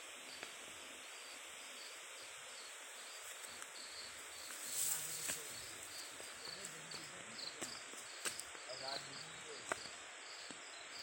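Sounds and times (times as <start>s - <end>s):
insects chirring: 0.0s - 11.0s
rustle: 0.0s - 11.0s
footsteps on a dirt trail: 3.1s - 8.7s.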